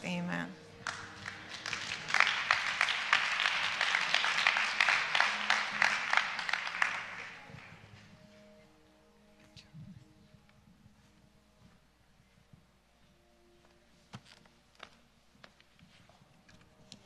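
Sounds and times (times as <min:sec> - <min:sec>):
faint steady musical tones: 0:00.0 - 0:17.0
audience applause: 0:00.8 - 0:08.0.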